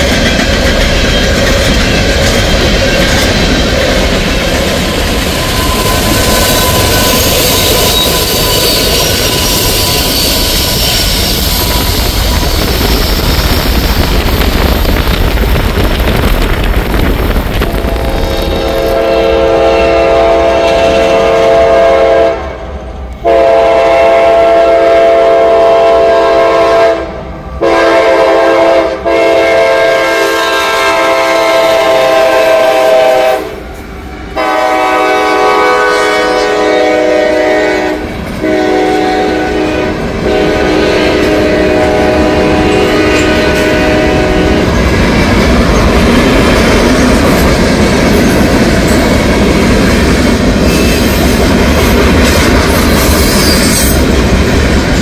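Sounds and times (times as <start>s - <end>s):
freight train rumbling past: 0.0s - 55.0s
locomotive air horn blasts: 17.6s - 33.6s, 34.3s - 44.7s.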